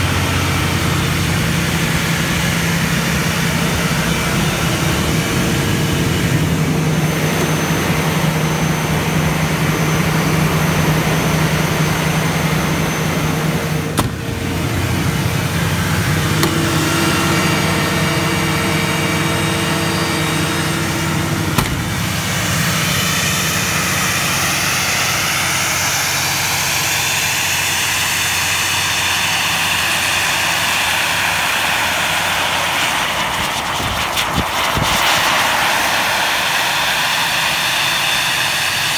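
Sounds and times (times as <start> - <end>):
diesel compressor engine running: 0.0 - 38.9.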